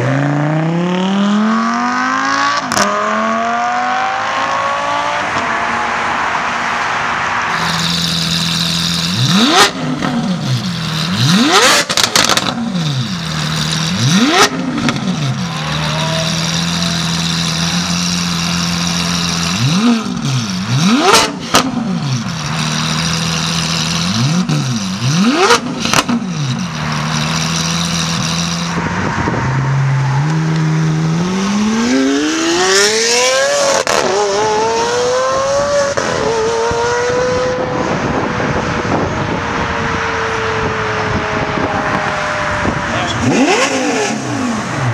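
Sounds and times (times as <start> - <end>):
car accelerating hard: 0.0 - 44.9
engine throttle blips: 7.5 - 34.7
sports car engine idling: 11.9 - 28.8.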